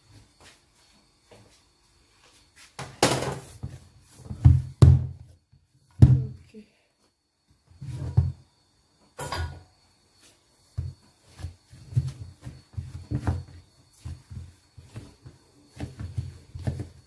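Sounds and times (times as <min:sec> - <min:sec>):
hands kneading dough on table: 0:10.2 - 0:17.0.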